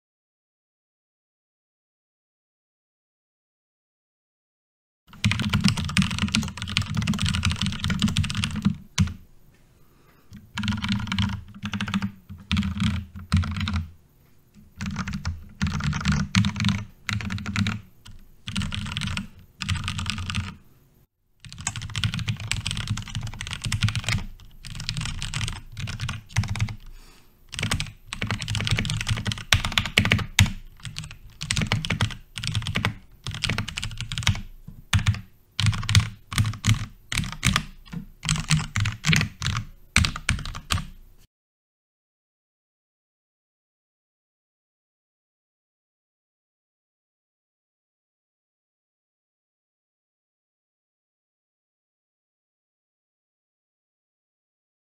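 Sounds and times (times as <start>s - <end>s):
mechanical keyboard typing: 5.1s - 9.2s, 10.3s - 13.9s, 14.6s - 20.6s, 21.4s - 26.9s, 27.5s - 41.0s.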